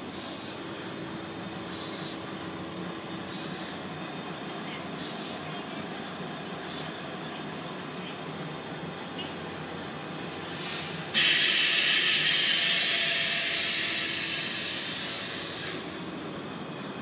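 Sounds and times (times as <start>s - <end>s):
compressed air hiss: 0.0s - 0.6s, 1.7s - 2.3s, 3.2s - 3.8s, 5.0s - 5.5s, 6.6s - 7.0s, 10.3s - 16.3s.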